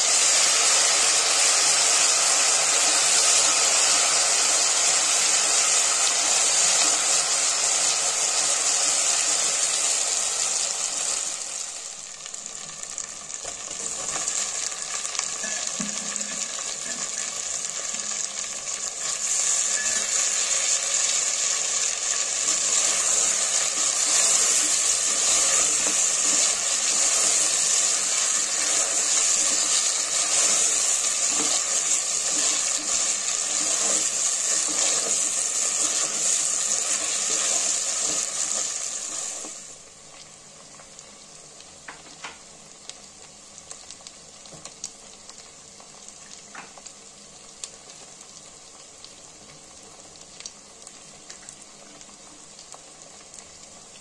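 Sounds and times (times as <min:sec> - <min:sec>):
oil sizzling in a metal pot: 0:00.0 - 0:54.0
spatula stirring food: 0:19.0 - 0:39.7.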